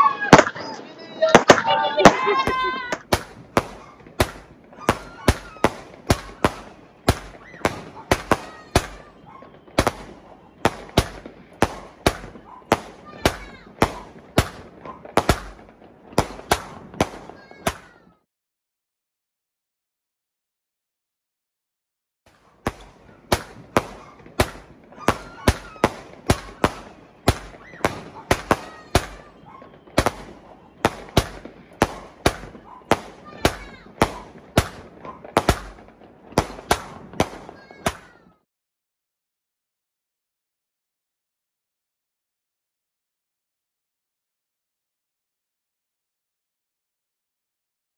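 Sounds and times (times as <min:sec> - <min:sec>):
firework bangs: 0:00.0 - 0:18.2, 0:22.3 - 0:38.4.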